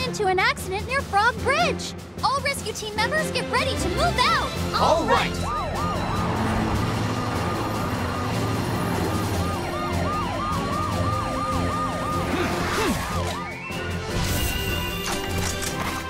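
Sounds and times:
background music: 0.0 - 16.0
sirens wailing: 4.4 - 14.1.

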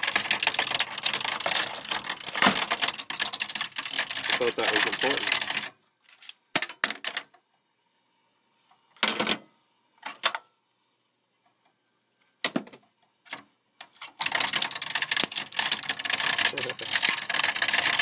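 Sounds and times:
computer parts clicking and clacking: 0.0 - 7.4, 13.3 - 18.0
continuous rattling and scraping: 0.0 - 7.4, 13.3 - 18.0.

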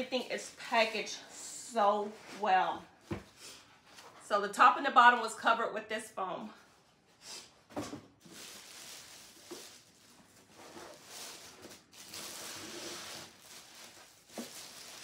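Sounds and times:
plastic bag rustling: 8.2 - 15.0.

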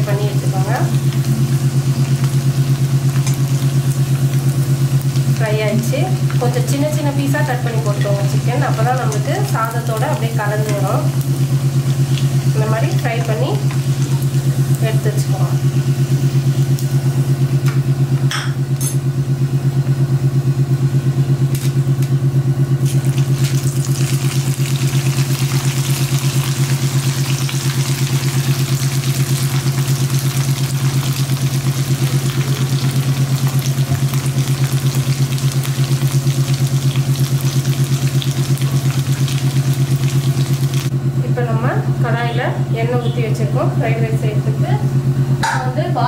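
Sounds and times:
chicken sizzling in oil: 0.0 - 18.2, 22.8 - 40.9
low pulsing mechanical hum: 0.0 - 46.0.

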